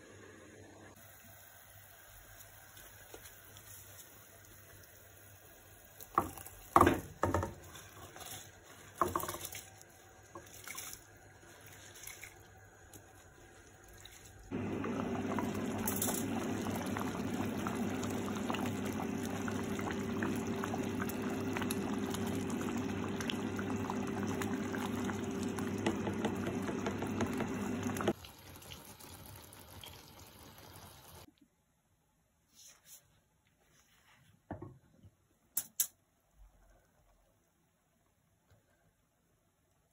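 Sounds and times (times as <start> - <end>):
syrup bubbling: 12.4 - 31.2.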